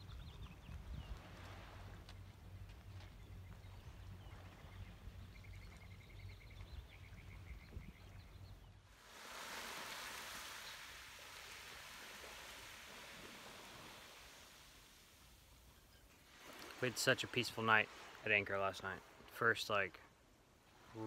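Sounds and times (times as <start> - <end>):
small waves lapping on pebbles: 0.1 - 6.0, 8.9 - 19.4.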